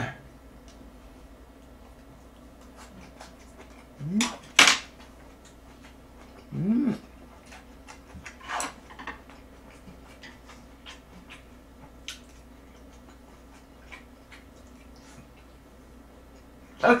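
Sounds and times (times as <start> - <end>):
person chewing and lip-smacking: 1.5 - 8.4, 9.2 - 16.6
person humming: 4.0 - 4.4, 6.4 - 7.1.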